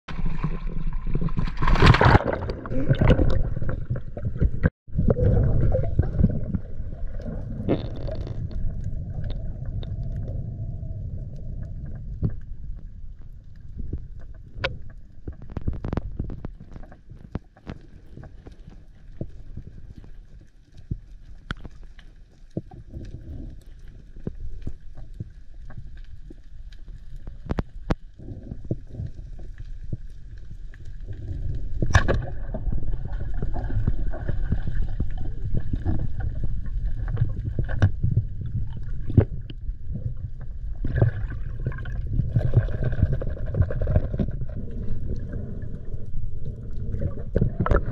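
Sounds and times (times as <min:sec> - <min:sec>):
underwater water rumble: 0:00.1 - 0:47.9
water gurgling: 0:00.1 - 0:47.9
underwater rushing wash: 0:31.2 - 0:47.9.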